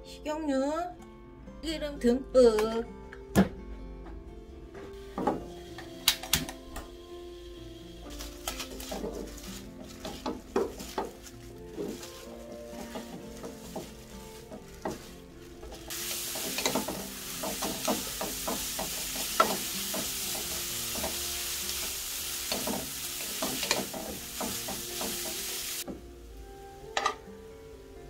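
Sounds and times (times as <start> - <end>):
greens sizzling in oil: 5.0 - 28.0
wooden spatulas clicking and scraping: 8.1 - 21.2, 22.5 - 25.4.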